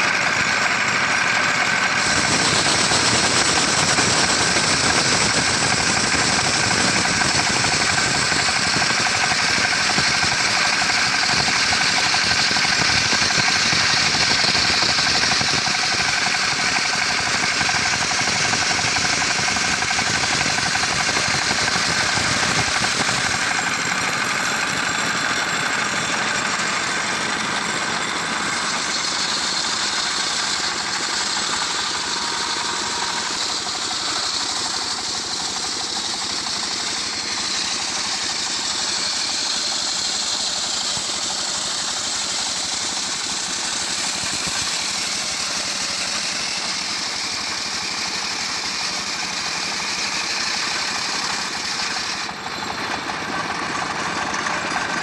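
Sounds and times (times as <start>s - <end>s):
circular sawmill running: 0.0s - 55.0s
saw blade ripping wood: 28.6s - 55.0s.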